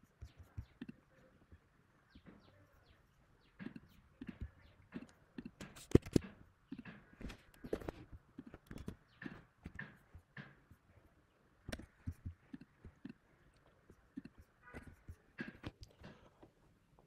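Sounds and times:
mouse clicks: 0:11.6 - 0:15.9.

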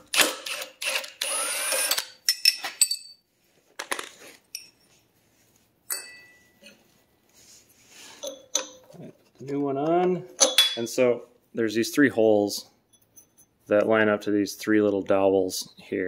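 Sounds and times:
impact wrench motor whine: 0:00.1 - 0:02.2
metallic clinks and knocks: 0:02.3 - 0:03.2, 0:04.5 - 0:04.9, 0:05.9 - 0:06.8, 0:12.9 - 0:13.6.

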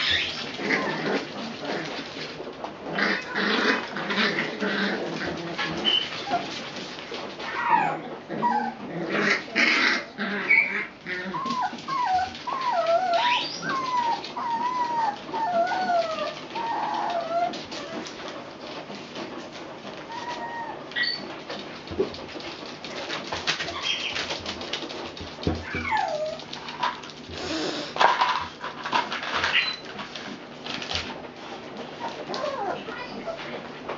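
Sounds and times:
puppies whining and yipping: 0:00.0 - 0:01.8, 0:04.3 - 0:06.6, 0:07.4 - 0:18.3, 0:20.0 - 0:21.5, 0:23.5 - 0:24.5, 0:25.5 - 0:26.7, 0:29.2 - 0:30.0, 0:32.0 - 0:33.6.

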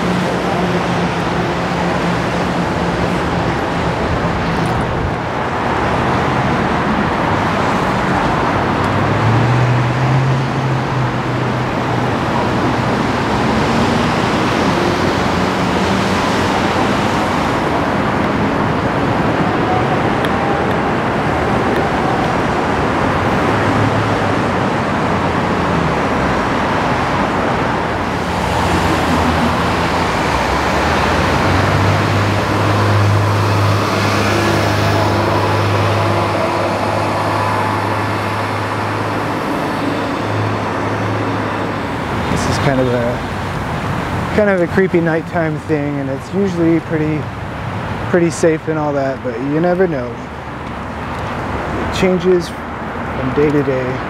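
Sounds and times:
car engines humming: 0:00.0 - 0:54.0.

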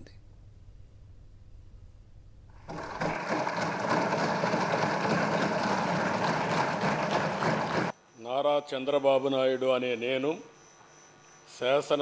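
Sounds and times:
crowd applauding: 0:02.7 - 0:07.9.

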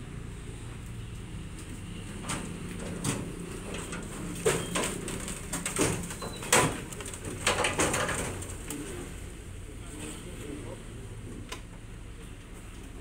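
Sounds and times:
car knocking down loading ramps: 0:02.1 - 0:08.6.

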